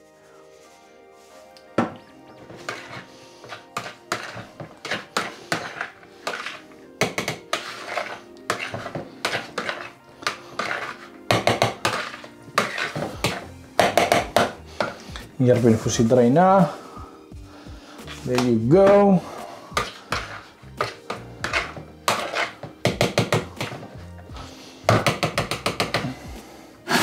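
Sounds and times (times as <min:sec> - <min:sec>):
background music: 0:00.0 - 0:27.0
fork beating in plastic bowl: 0:02.6 - 0:15.3, 0:18.3 - 0:19.1, 0:19.7 - 0:23.9, 0:24.9 - 0:26.2.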